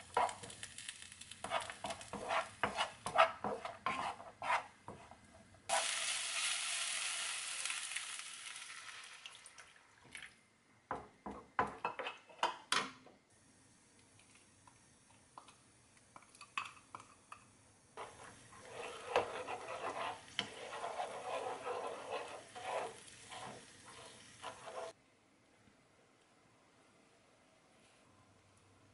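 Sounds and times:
wooden spatula scraping a pan: 0:00.0 - 0:00.6, 0:01.4 - 0:05.3, 0:18.0 - 0:25.0
water sizzling in a hot pan: 0:00.0 - 0:03.1, 0:05.7 - 0:10.1, 0:18.0 - 0:25.0.

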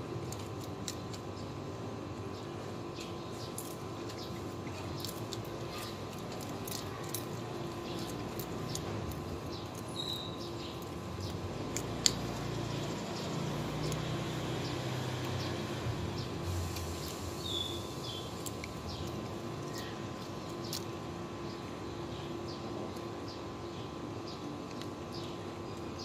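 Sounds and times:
kittens crunching shells: 0:00.1 - 0:01.5, 0:02.8 - 0:16.0, 0:16.6 - 0:21.1.

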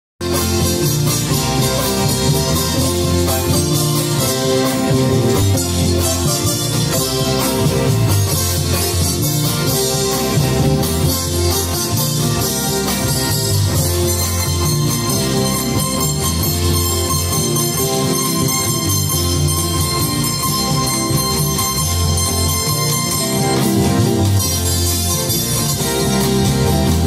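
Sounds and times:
folk string ensemble playing: 0:00.2 - 0:27.0.

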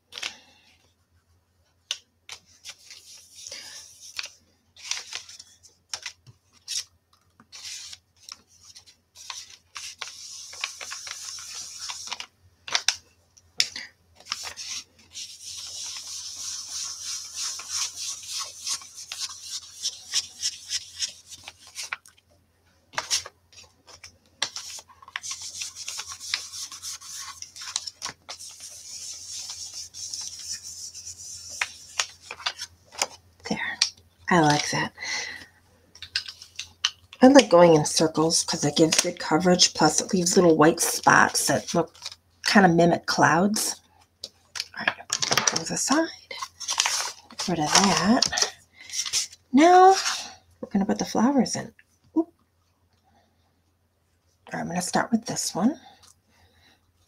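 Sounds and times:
brush swishing on cardstock: 0:14.4 - 0:21.4, 0:25.2 - 0:32.2.

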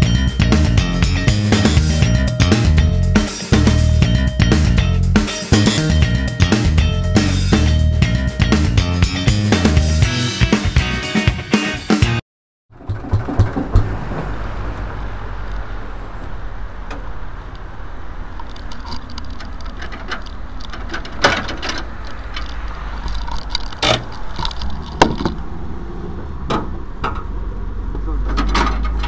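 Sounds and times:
sharp knocks and rattles: 0:12.7 - 0:14.8, 0:18.4 - 0:25.4, 0:28.2 - 0:29.0
tractor engine rumbling: 0:12.7 - 0:29.0.

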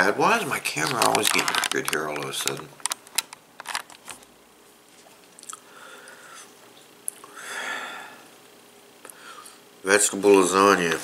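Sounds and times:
breathy hiss: 0:05.6 - 0:06.6, 0:07.2 - 0:08.4, 0:09.0 - 0:09.8.

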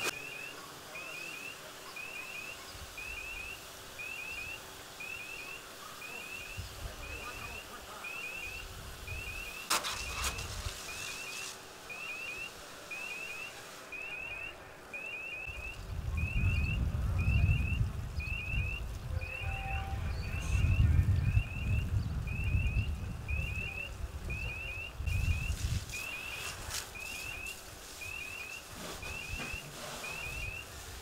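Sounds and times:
electronic alarm beeps: 0:00.0 - 0:10.2, 0:10.9 - 0:30.7
fire hose spraying water: 0:00.0 - 0:16.1, 0:25.0 - 0:31.0.

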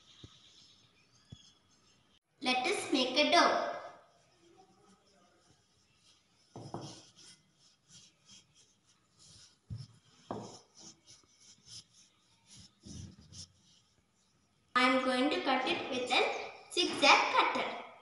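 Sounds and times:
rolling pin rubbing on dough: 0:04.0 - 0:14.7
rolling pin knocking countertop: 0:06.6 - 0:07.0, 0:10.3 - 0:10.6.

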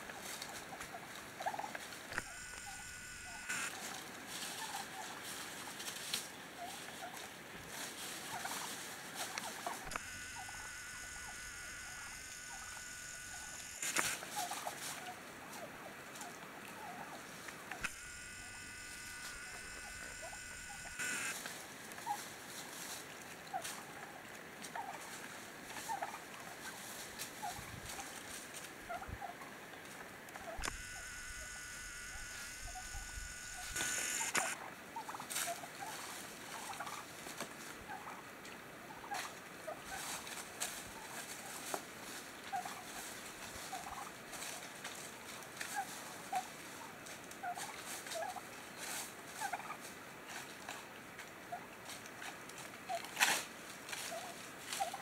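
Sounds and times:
wild turkeys calling softly: 0:00.1 - 0:50.9, 0:51.5 - 0:55.0
steady high whine: 0:02.1 - 0:04.6, 0:09.2 - 0:15.6, 0:16.7 - 0:21.5, 0:30.4 - 0:34.6.

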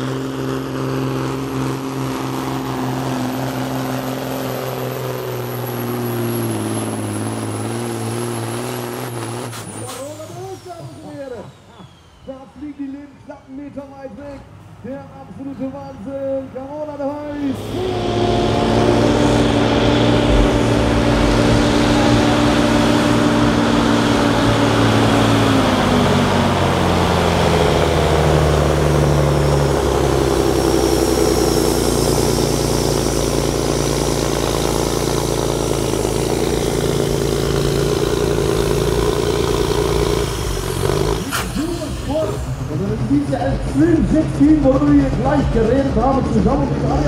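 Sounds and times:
diesel truck engine labouring: 0:00.0 - 0:47.0.

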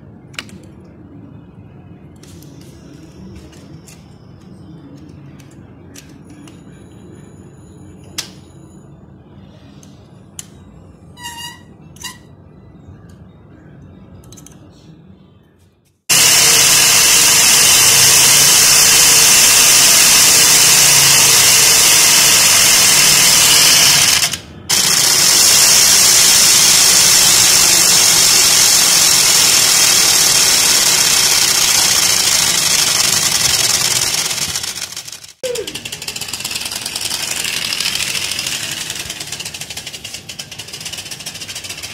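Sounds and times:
clicks and short squeaks: 0:11.1 - 0:12.4
rattling buzz of bicycle noise-maker: 0:16.1 - 0:41.9.

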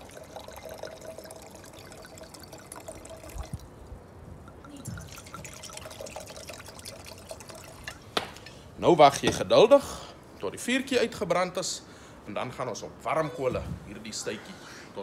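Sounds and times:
wine pouring into a glass: 0:00.0 - 0:03.7, 0:04.5 - 0:08.0.

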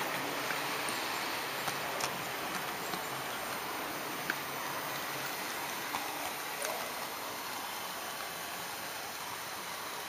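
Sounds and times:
model train rolling on track: 0:00.0 - 0:10.0.

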